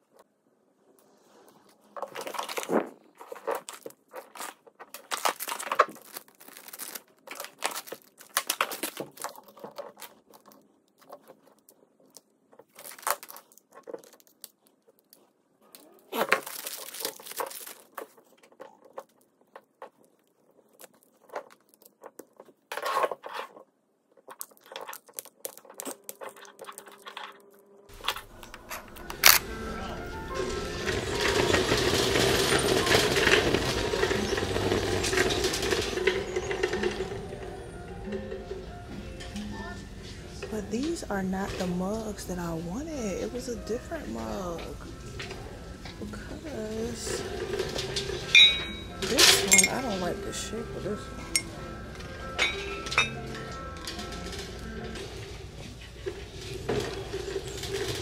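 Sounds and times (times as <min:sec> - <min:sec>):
plastic packaging crinkling: 0:01.4 - 0:37.0.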